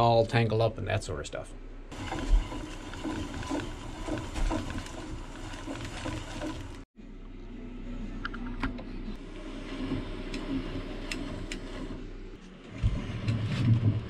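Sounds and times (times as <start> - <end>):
plastic spools rattling on a rod: 1.9 - 6.8.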